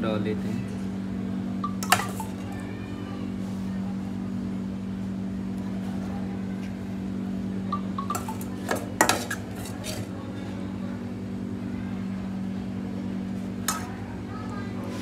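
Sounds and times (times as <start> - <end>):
low machine hum: 0.0 - 15.0
metal spoon clinking on steel: 1.7 - 2.4, 8.0 - 10.0.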